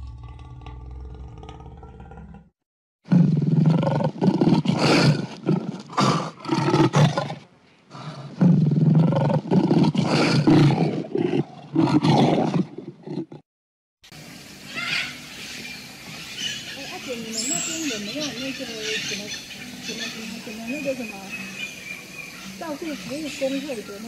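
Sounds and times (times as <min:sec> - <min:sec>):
lion roaring and grunting: 0:00.0 - 0:02.5, 0:03.1 - 0:13.4.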